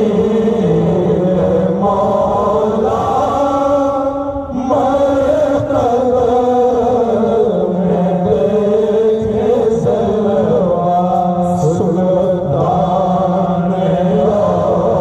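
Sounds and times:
men chanting through a microphone: 0:00.0 - 0:15.0.

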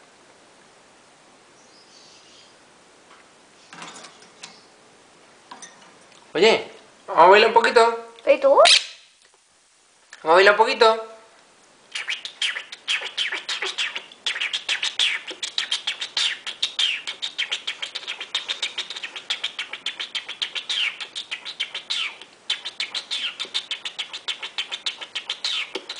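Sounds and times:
parakeet chattering: 0:08.6 - 0:09.0, 0:11.9 - 0:25.9.

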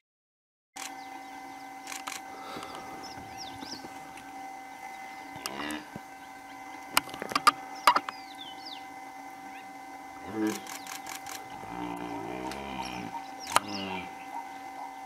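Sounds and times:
high bird chirps: 0:00.8 - 0:04.1, 0:04.7 - 0:15.0
steady hum: 0:00.8 - 0:15.0
camera shutter clicks: 0:01.9 - 0:02.2, 0:10.5 - 0:11.4, 0:13.5 - 0:13.7.

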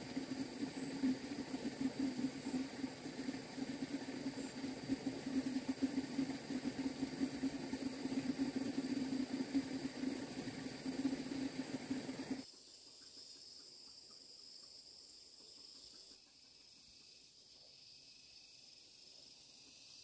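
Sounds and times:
fluttering low engine drone: 0:00.0 - 0:12.4
insects trilling: 0:00.0 - 0:20.0.

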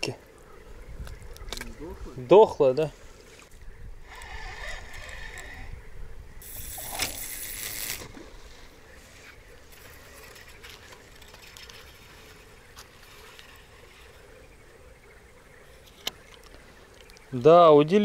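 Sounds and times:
fishing line running off spool: 0:04.0 - 0:05.7, 0:06.4 - 0:08.7
spinning reel clicks: 0:06.4 - 0:08.1.

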